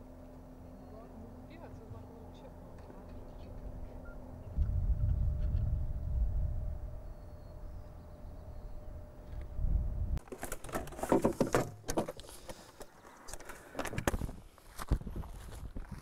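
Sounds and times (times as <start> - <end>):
low outdoor rumble: 0.0 - 10.3
faint steady hum: 0.0 - 16.0
knocks and clatter of metal stands: 10.2 - 12.6.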